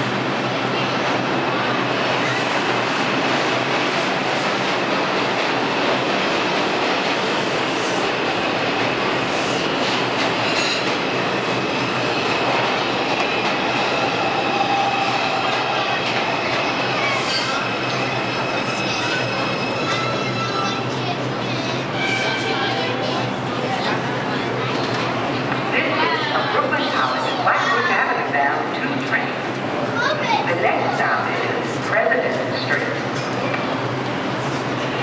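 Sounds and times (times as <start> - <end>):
train wheels rumbling on rail: 0.0 - 35.0
high wheel squeal: 13.8 - 20.8.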